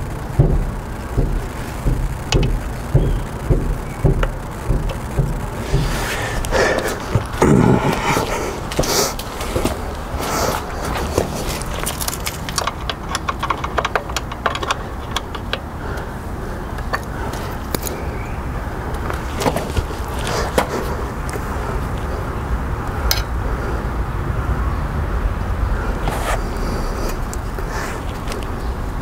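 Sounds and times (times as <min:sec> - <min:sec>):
low rumble: 0:00.0 - 0:10.9.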